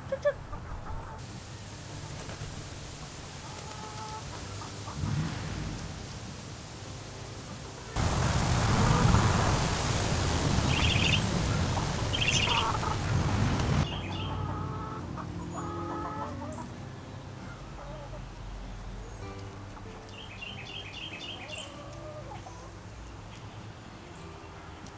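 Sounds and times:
hens clucking: 0.0s - 1.2s, 3.0s - 5.1s, 7.5s - 16.7s, 17.4s - 18.4s, 21.3s - 22.8s
loud rushing noise: 4.8s - 13.9s
high bird chirps: 10.7s - 11.3s, 12.0s - 12.8s.

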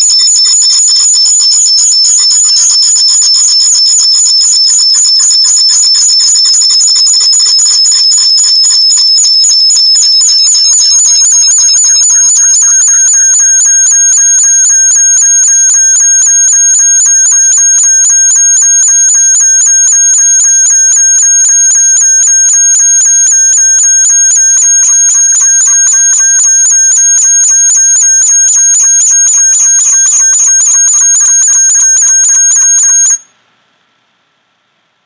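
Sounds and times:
pulsing electronic audio feedback: 0.0s - 33.2s.

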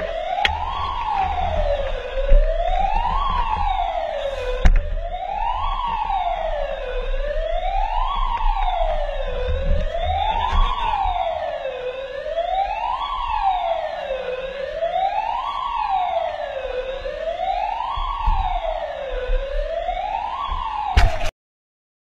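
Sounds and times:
police siren wailing: 0.0s - 21.3s
sharp knock: 21.0s - 21.3s.

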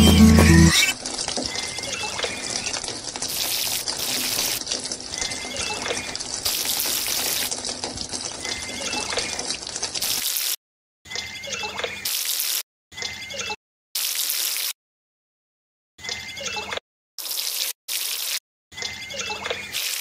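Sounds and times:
water pouring into toy pond: 0.8s - 14.8s, 17.2s - 20.0s.

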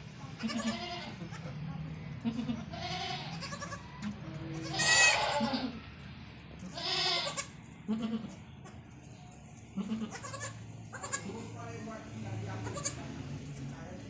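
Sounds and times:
goats bleating: 0.4s - 1.4s, 2.2s - 5.8s, 6.6s - 8.8s, 9.8s - 11.4s, 12.6s - 13.1s.

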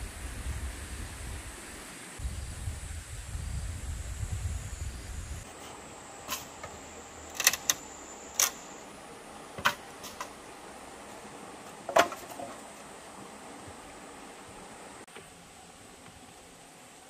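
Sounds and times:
faint steady hiss: 0.0s - 17.0s
wooden poles knocking: 11.9s - 12.6s.

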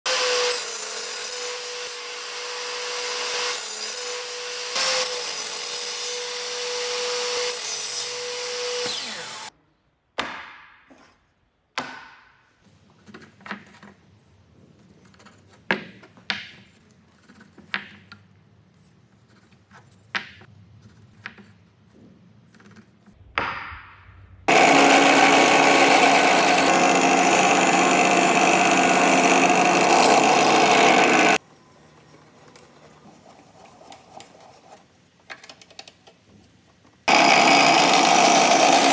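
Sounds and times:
table saw cutting wood: 0.1s - 9.5s, 24.5s - 31.4s, 37.1s - 38.9s
drill press boring wood: 4.2s - 9.5s, 24.5s - 31.4s, 37.1s - 38.9s
pencil and awl tapping and scraping: 12.6s - 23.3s, 32.4s - 37.0s.

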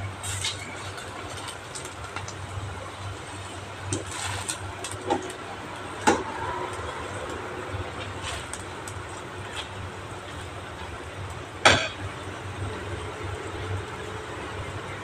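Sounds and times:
water boiling in metal pan: 0.0s - 15.0s.

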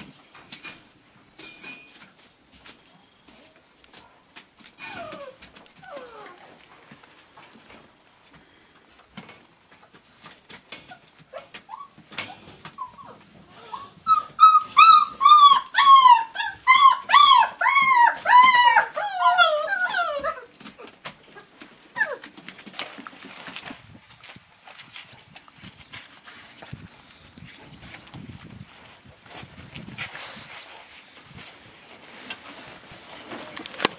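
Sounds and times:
puppy whining: 4.6s - 6.7s, 10.8s - 22.5s.

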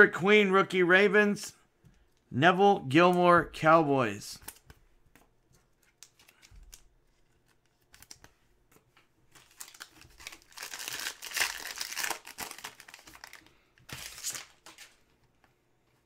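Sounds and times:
foil wrapper crinkling: 9.3s - 15.0s.

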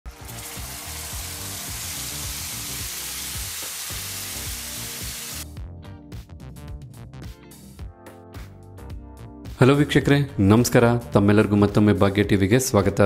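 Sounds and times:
hot ghee sizzling: 0.1s - 5.4s
background music: 0.1s - 13.0s.

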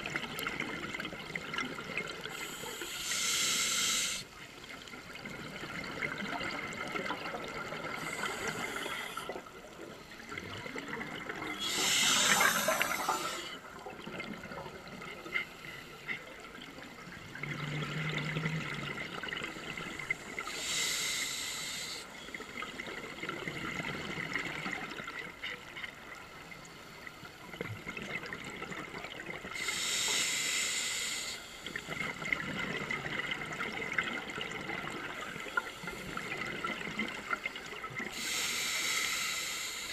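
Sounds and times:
regulator hiss: 2.3s - 4.3s, 8.0s - 9.4s, 11.5s - 13.6s, 20.2s - 22.1s, 29.6s - 31.7s, 38.2s - 39.9s.

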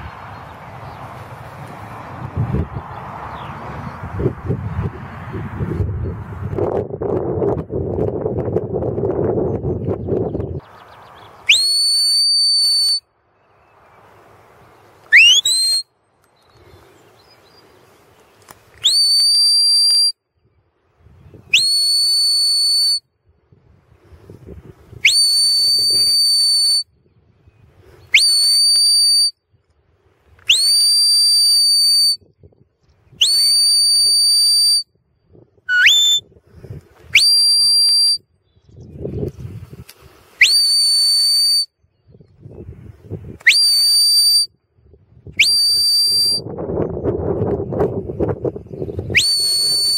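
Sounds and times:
shepherd's whistle blasts: 11.5s - 13.1s, 15.1s - 15.9s, 18.8s - 20.2s, 21.5s - 23.1s, 25.0s - 26.9s, 28.1s - 29.4s, 30.5s - 32.3s, 33.2s - 34.9s, 35.7s - 36.3s, 37.1s - 38.2s, 40.4s - 41.8s, 43.4s - 44.5s, 45.4s - 46.5s, 49.1s - 49.9s.

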